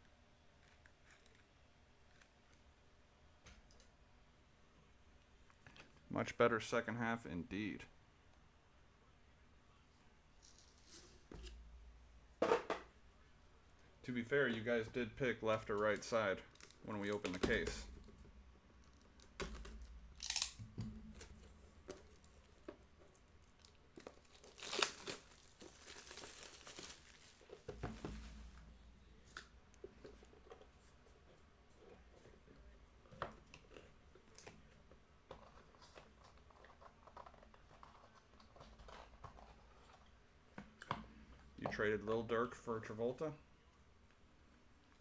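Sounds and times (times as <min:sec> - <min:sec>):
shrink wrap crinkling and tearing: 0:15.8 - 0:17.7, 0:18.8 - 0:20.6, 0:21.2 - 0:27.7.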